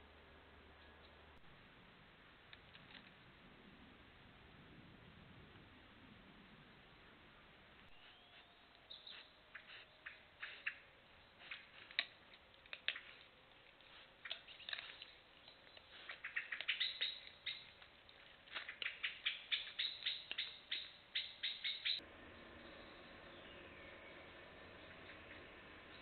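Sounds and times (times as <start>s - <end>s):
deer nibbling and chewing: 7.9s - 22.0s.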